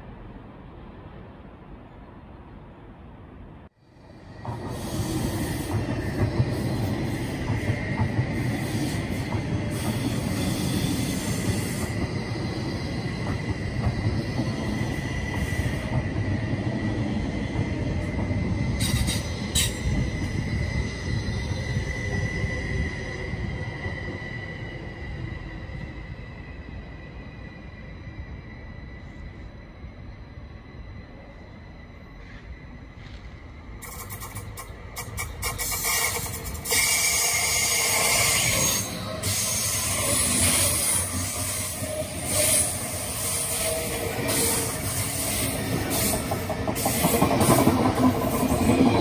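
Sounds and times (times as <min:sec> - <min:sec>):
train wheels rumbling: 0:04.0 - 0:49.0
high-pitched wheel squeal: 0:33.8 - 0:47.0.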